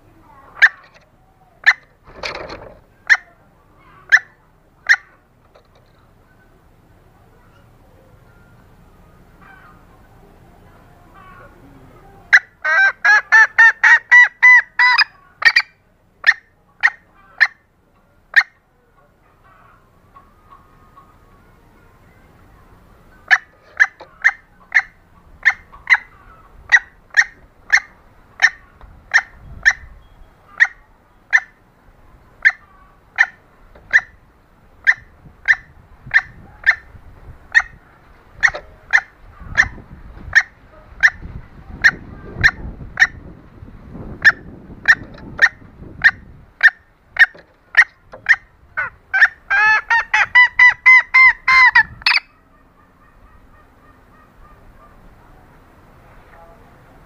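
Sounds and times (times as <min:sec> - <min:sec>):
hen clucking call: 0:00.0 - 0:06.6, 0:07.3 - 0:43.4, 0:44.1 - 0:55.1.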